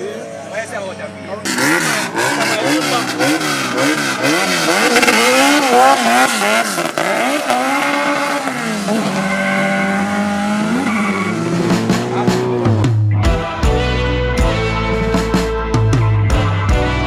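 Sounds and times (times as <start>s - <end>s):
car engine revving: 1.4s - 13.1s.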